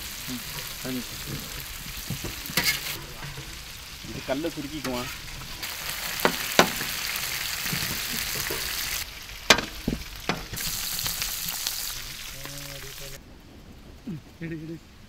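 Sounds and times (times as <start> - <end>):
metal skimmer clinking: 0.0 - 10.7
oil sizzling from deep-frying: 0.0 - 13.2.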